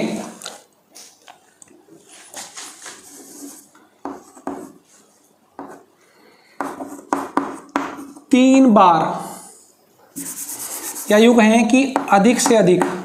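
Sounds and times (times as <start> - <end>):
chalk scratching on blackboard: 2.9 - 4.8, 10.2 - 11.4
chalk tapping on blackboard: 3.1 - 4.8, 6.6 - 8.2, 10.2 - 11.3, 11.9 - 13.0.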